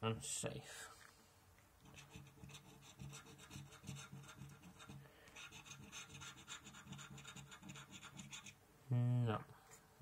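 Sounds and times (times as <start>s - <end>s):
scratchcard scratching: 1.8s - 8.6s.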